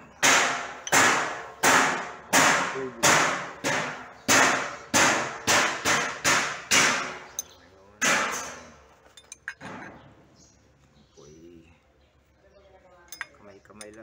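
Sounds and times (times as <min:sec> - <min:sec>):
hammer striking metal: 0:00.2 - 0:09.9.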